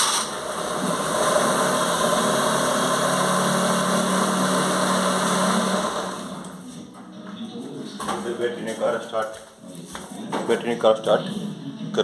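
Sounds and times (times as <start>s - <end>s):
car engine idling: 0.0s - 6.6s.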